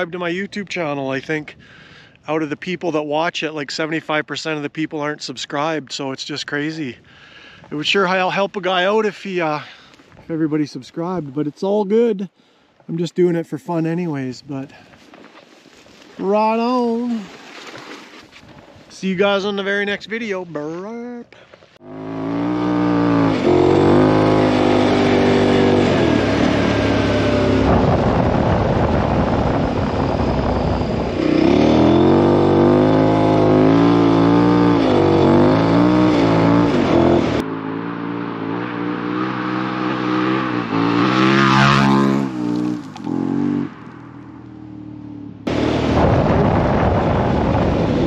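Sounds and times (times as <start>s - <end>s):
motorcycle engine accelerating: 21.8s - 48.0s.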